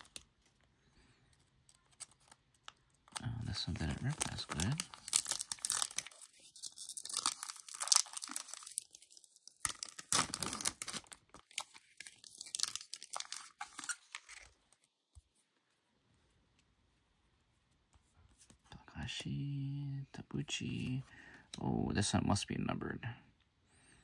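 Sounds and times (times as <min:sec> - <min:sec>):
plastic wrapper tearing and crinkling: 0:00.0 - 0:00.6, 0:01.3 - 0:14.8.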